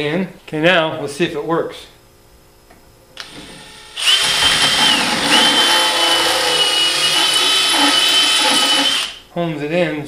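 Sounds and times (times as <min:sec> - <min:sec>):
cordless drill whining: 0:03.2 - 0:09.2.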